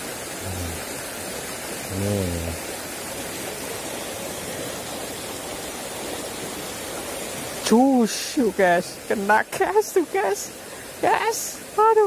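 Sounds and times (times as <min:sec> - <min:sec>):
stream running over stones: 0:00.0 - 0:12.0
man's short vocal sound: 0:01.9 - 0:02.6.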